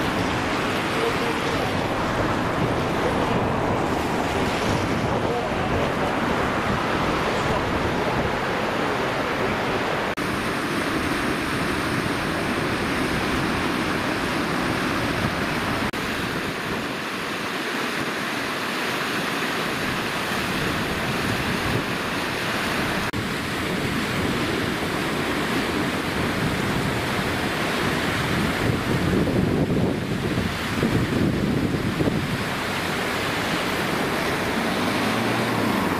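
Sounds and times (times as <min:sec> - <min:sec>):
wind on microphone: 0:00.0 - 0:18.1, 0:19.6 - 0:35.9
fast swollen river rushing: 0:00.0 - 0:35.9.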